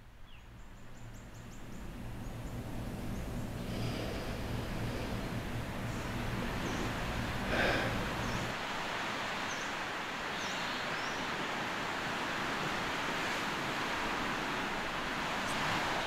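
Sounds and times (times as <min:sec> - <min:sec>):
low room hum: 0:00.0 - 0:09.6
surf washing in: 0:01.5 - 0:16.0.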